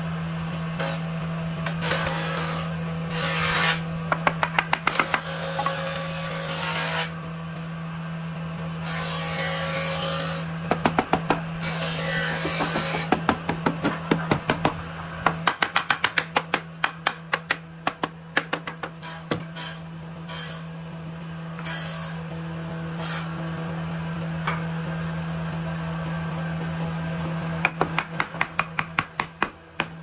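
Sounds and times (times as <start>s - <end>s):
wooden block knocking on wood panel: 10.7s - 11.4s, 12.4s - 19.4s.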